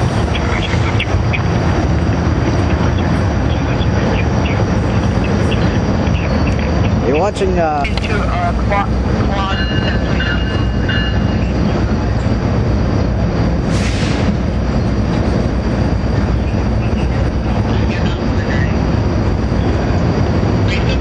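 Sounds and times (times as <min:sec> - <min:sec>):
train wheels rumbling on rail: 0:00.0 - 0:21.0
brief hiss: 0:13.7 - 0:14.3.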